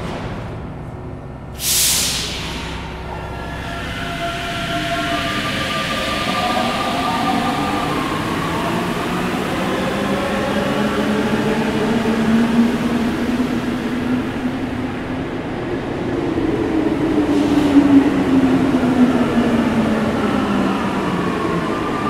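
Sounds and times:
train running rumble: 0.0 - 22.0
train motor whine: 1.6 - 10.6.

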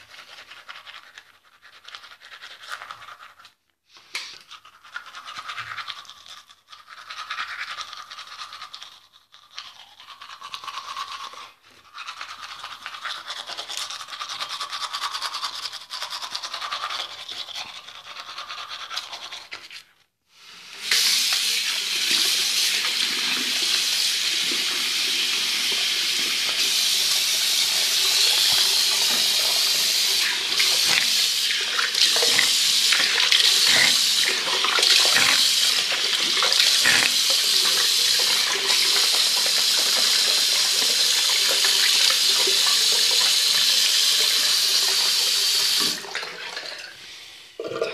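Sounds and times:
toothbrush scrubbing teeth: 0.0 - 46.2
running water: 20.9 - 47.9.

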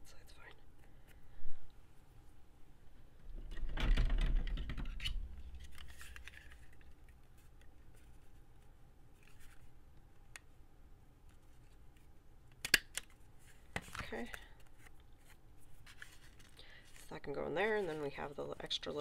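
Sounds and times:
paper and fabric rustling: 13.3 - 19.0.

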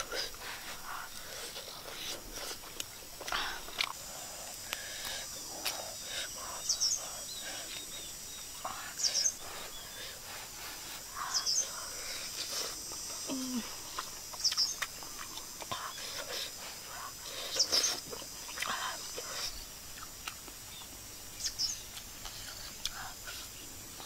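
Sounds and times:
bird chirping: 0.0 - 24.0
high outdoor background hum: 0.0 - 24.0
soft eating noises: 0.0 - 24.0.

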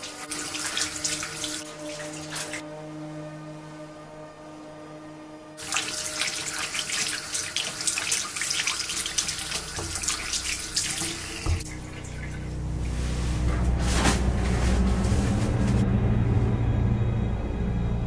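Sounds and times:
tap water running and splashing: 0.0 - 2.6, 5.6 - 12.6
low drone: 1.6 - 5.6, 11.5 - 18.0.

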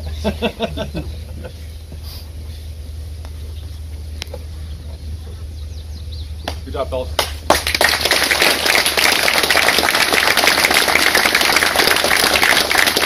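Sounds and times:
crowd applauding: 7.2 - 13.0.

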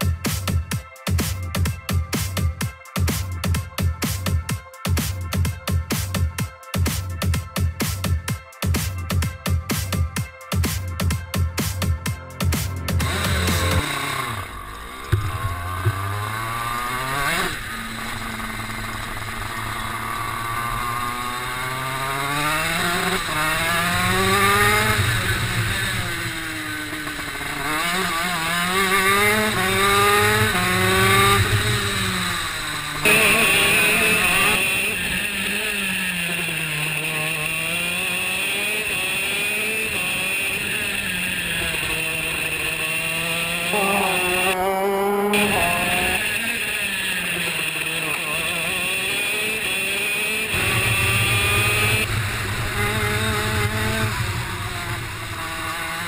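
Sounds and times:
go-kart engine revving: 12.4 - 56.0
steady high whine: 12.7 - 38.1, 45.3 - 56.0.

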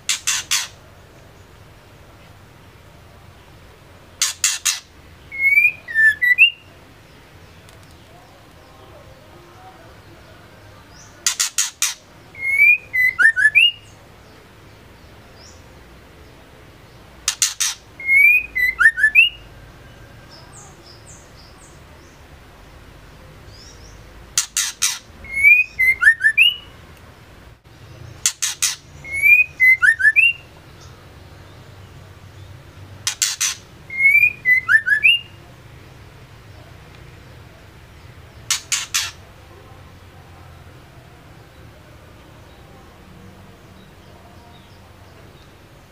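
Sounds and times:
bird calling with clicks and whistles: 0.1 - 0.8, 4.2 - 6.6, 17.3 - 19.4, 24.4 - 26.7, 28.2 - 30.4, 33.0 - 35.3, 38.5 - 39.2.

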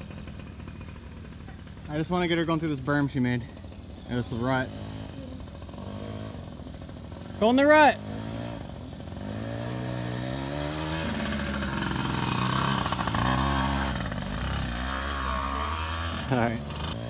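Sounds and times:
dirt bike engine revving: 0.0 - 17.0.

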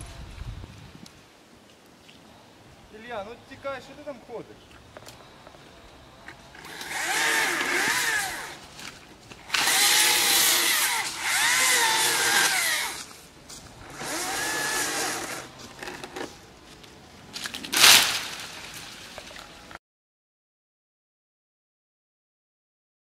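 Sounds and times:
chainsaw revving: 6.6 - 8.6, 9.5 - 13.1, 13.9 - 16.2.

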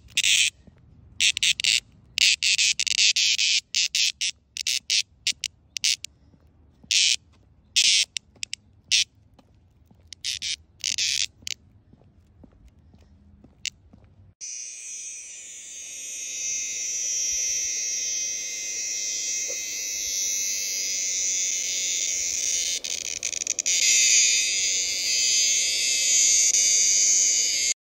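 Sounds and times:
cicada buzzing: 0.0 - 0.5, 1.2 - 6.1, 6.9 - 7.2, 7.8 - 9.0, 10.1 - 11.6, 14.4 - 27.8.

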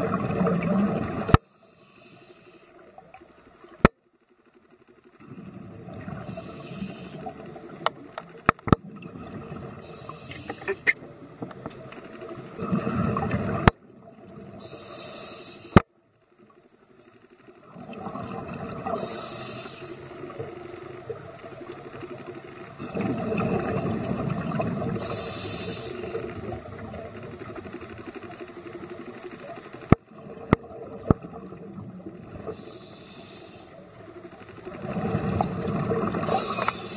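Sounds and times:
rumbling exhaled bubbles: 0.0 - 1.3, 8.8 - 9.8, 12.3 - 14.6, 17.6 - 19.0, 22.7 - 25.0, 30.1 - 32.5, 34.6 - 36.6
regulator inhale hiss: 1.3 - 3.0, 6.2 - 7.4, 9.8 - 10.8, 14.6 - 15.8, 18.9 - 20.4, 24.9 - 26.6, 32.4 - 33.9, 36.2 - 36.9.

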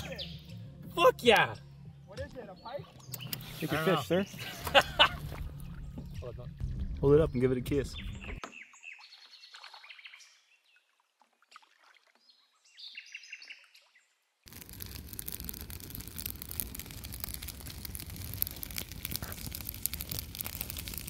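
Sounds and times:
faint bird chirps and song: 1.6 - 4.6, 7.3 - 14.4
hiss with crackling clicks: 14.5 - 21.0.

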